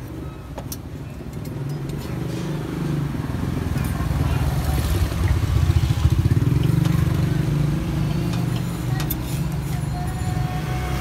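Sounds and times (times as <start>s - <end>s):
motorcycle engine running: 3.4s - 9.2s.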